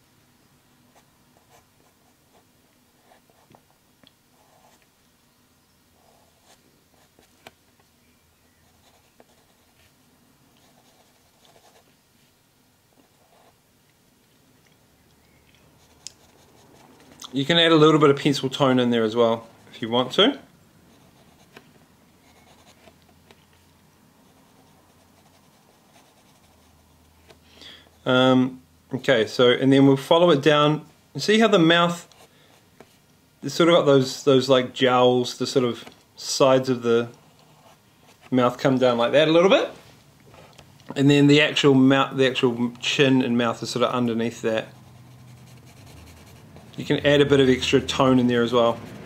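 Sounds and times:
pencil scratching on paper: 10.6 - 11.8, 22.2 - 22.9, 24.3 - 26.9, 44.6 - 49.0.

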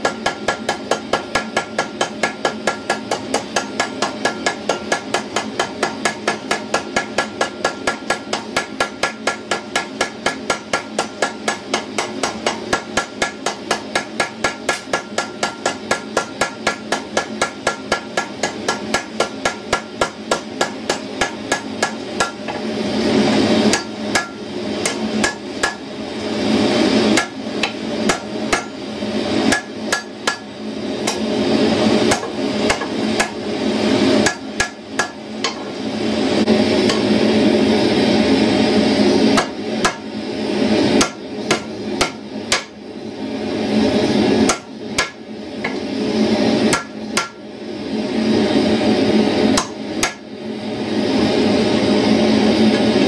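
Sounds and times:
hammer striking steel on anvil: 0.0 - 22.7, 23.7 - 25.9, 27.1 - 28.8, 29.5 - 31.3, 32.0 - 33.4, 34.2 - 35.8, 36.8 - 37.2, 39.3 - 40.1, 41.0 - 42.8, 44.4 - 45.9, 46.7 - 47.4, 49.6 - 50.2.

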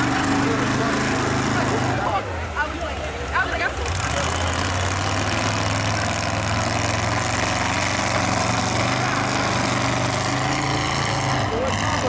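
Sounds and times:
low engine drone: 3.5 - 12.0.

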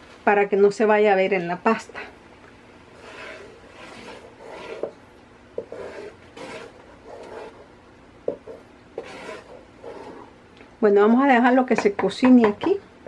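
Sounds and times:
wooden spoon scraping pot: 2.9 - 5.0, 5.6 - 7.7, 8.3 - 10.4
spoon knocking pot: 11.7 - 12.8.

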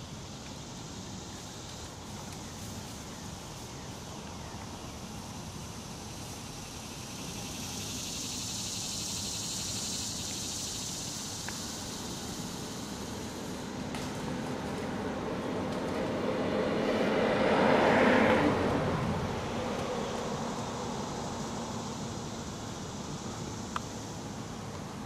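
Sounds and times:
steady rushing hiss: 0.0 - 17.0, 18.7 - 25.0
low engine drone: 12.4 - 25.0.

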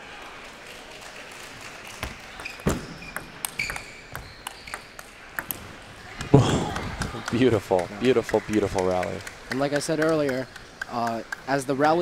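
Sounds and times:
short high squeaks: 2.4 - 5.0.

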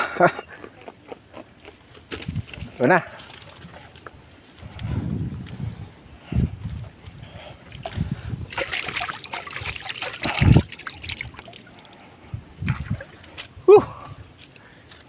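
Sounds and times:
water splashing: 7.7 - 13.5.

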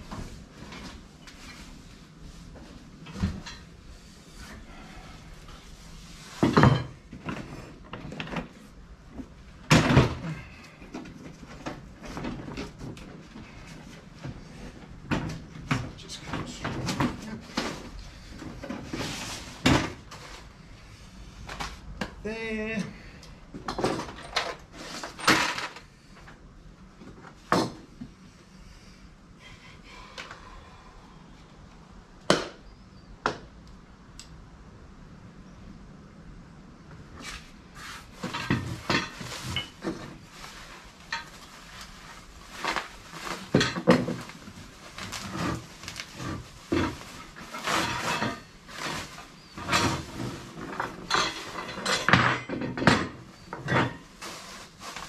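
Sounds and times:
plastic wrap rustling: 37.8 - 51.7, 53.3 - 55.0.

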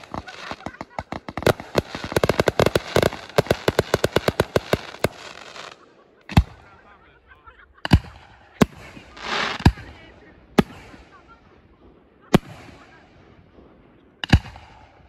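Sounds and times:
firework crackle: 0.0 - 6.6, 7.9 - 11.2
rapid firework bangs: 0.0 - 6.8, 7.8 - 15.0.

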